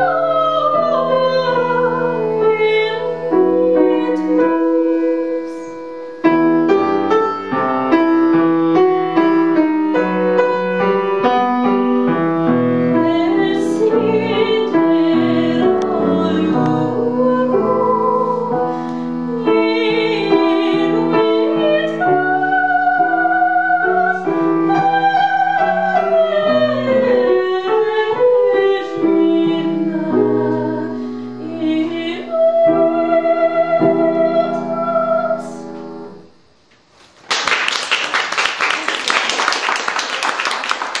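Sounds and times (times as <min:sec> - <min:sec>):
woman singing opera: 0:00.0 - 0:06.4, 0:12.8 - 0:35.8
piano accompaniment: 0:00.0 - 0:36.5
audience applause: 0:37.3 - 0:41.0.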